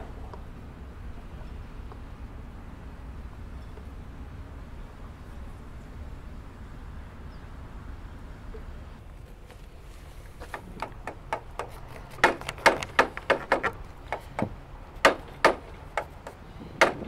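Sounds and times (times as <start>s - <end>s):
hammer knocking on wooden hull: 10.6s - 17.0s.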